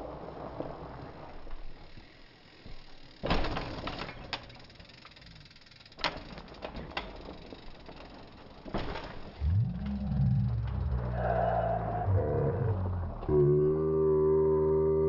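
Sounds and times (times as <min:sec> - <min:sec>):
mountain bike rattling over rock: 0:00.0 - 0:11.0
bike landing impact: 0:02.7 - 0:04.6, 0:08.6 - 0:09.4.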